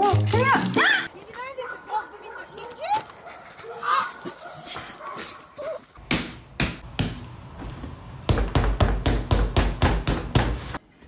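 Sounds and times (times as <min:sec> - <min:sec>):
loud sharp slaps: 0:06.1 - 0:07.2.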